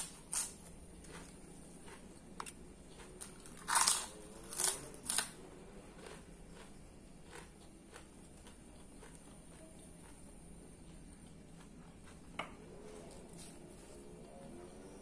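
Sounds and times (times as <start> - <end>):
loud cracker crunches: 3.2 - 5.4.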